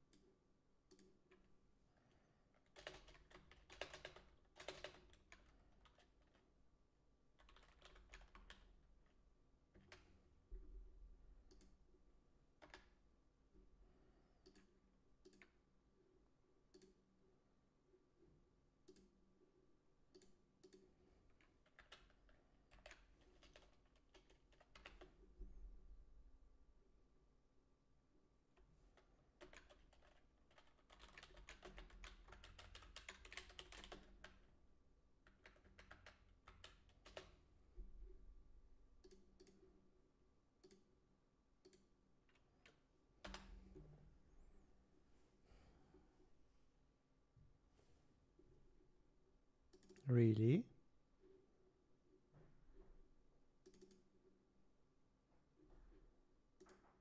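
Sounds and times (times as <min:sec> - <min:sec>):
faint keyboard typing: 0:00.0 - 0:06.6, 0:07.3 - 0:10.7, 0:11.4 - 0:13.1, 0:14.4 - 0:17.3, 0:18.8 - 0:26.0, 0:28.5 - 0:38.2, 0:39.0 - 0:40.0, 0:40.6 - 0:41.0, 0:41.6 - 0:44.2, 0:49.7 - 0:50.6, 0:52.1 - 0:54.5, 0:55.4 - 0:57.0.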